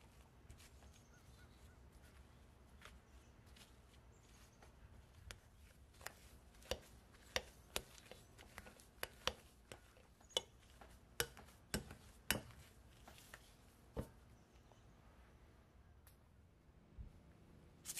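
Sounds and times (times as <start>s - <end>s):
potato masher clinking against glass bowl: 6.7s - 12.6s.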